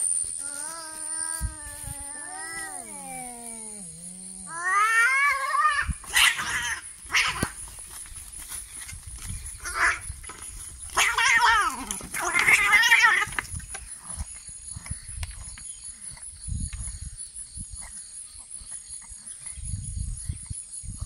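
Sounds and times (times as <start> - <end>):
cat screeching: 0.4 - 7.4
cats yowling: 0.4 - 7.5, 9.6 - 10.0, 11.0 - 13.4.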